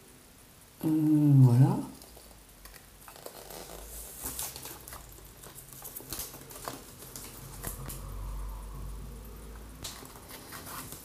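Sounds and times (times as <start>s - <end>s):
faint low rumble of handling: 1.8s - 11.0s
scratchy rustling: 2.0s - 7.8s, 9.9s - 11.0s.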